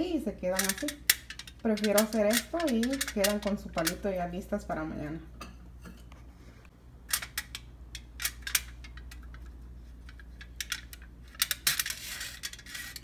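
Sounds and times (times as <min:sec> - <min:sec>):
aluminium foil crinkling: 0:00.5 - 0:04.1.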